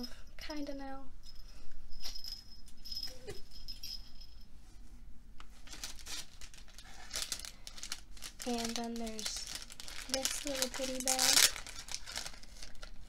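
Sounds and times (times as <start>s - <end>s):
jingle bell tinkling: 1.2s - 4.5s
tissue paper rustling: 5.5s - 13.0s.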